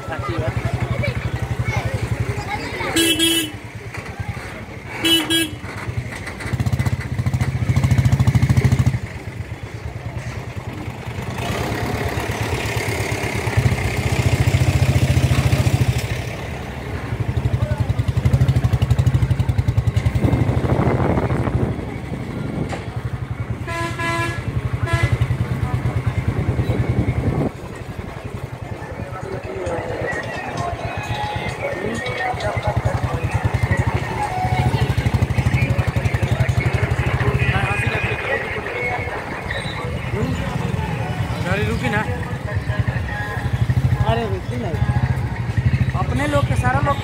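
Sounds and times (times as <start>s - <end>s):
motorcycle engine revving: 0.1s - 29.0s, 32.6s - 47.0s
vehicle horn honking: 2.9s - 3.7s, 5.0s - 5.7s, 23.6s - 25.4s.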